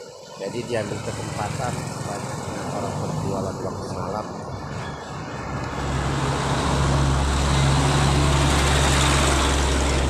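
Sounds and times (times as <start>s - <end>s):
heavy vehicle engine drone: 0.0s - 10.0s
tyre and road noise: 0.0s - 10.0s.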